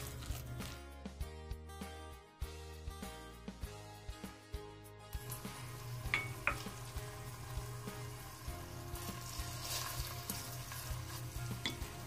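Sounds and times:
oil sizzling in frying pan: 5.2 - 12.0.

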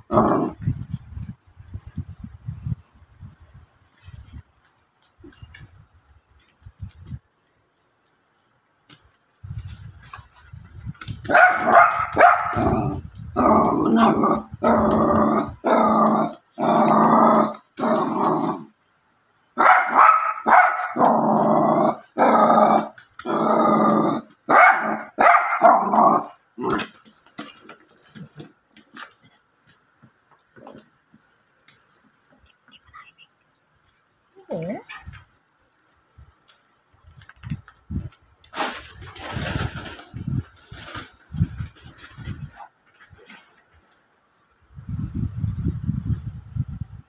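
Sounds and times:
puppy growling and barking: 0.0 - 0.8, 11.2 - 18.7, 19.6 - 28.9, 34.4 - 35.2.

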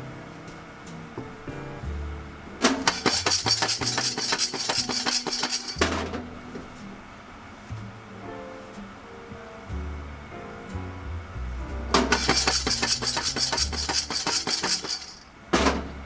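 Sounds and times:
coffee beans rattling in a pan: 2.9 - 5.8, 12.1 - 15.3.

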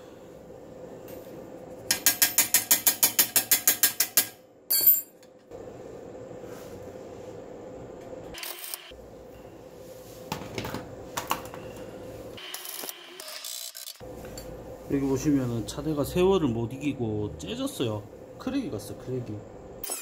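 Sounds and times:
metallic clink: 2.2 - 5.2.

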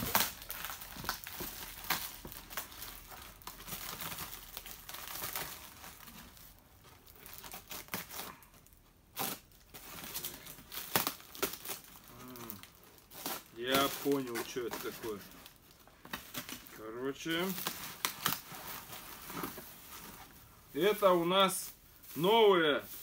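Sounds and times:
paper tearing and crumpling: 0.0 - 6.4, 9.2 - 15.6.

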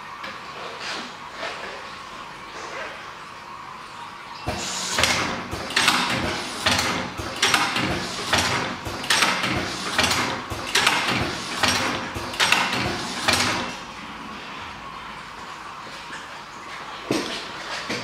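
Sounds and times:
pneumatic machine strokes: 4.5 - 13.8.

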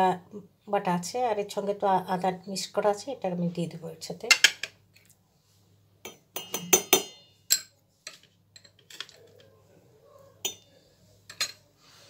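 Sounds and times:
metal spoon clinking on bowl: 6.1 - 9.3, 10.4 - 11.6.

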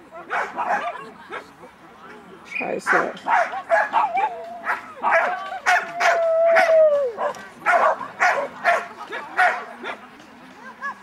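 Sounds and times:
dog barking: 0.3 - 1.4, 2.9 - 10.0.

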